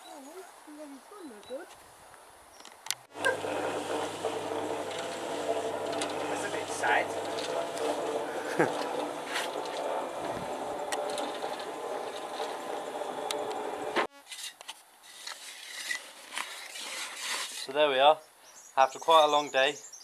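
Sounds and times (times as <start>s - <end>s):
cement mixer running: 3.1s - 14.1s
scrapes and knocks: 3.1s - 14.6s.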